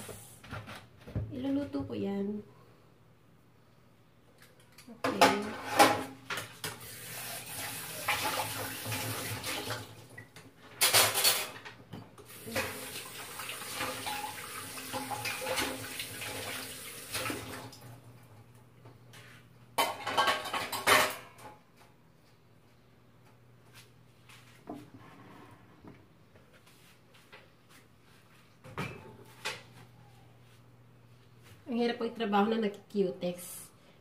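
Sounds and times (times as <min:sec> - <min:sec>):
tap water running into metal sink: 0:06.6 - 0:09.9, 0:12.3 - 0:17.9
metal dishware clattering: 0:10.8 - 0:11.6, 0:19.8 - 0:21.5.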